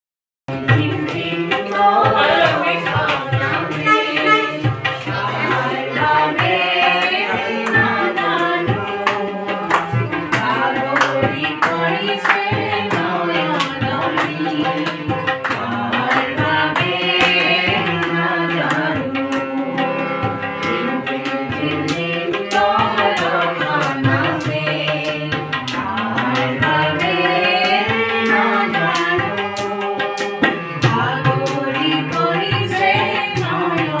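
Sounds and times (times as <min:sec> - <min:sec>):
harmonium: 0:00.5 - 0:34.0
tabla: 0:00.5 - 0:34.0
person singing: 0:00.6 - 0:19.5.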